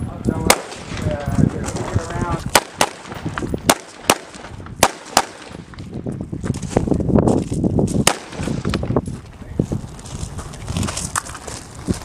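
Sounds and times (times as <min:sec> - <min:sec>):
rifle shots: 0:00.4 - 0:01.2, 0:02.5 - 0:05.8, 0:08.0 - 0:08.8.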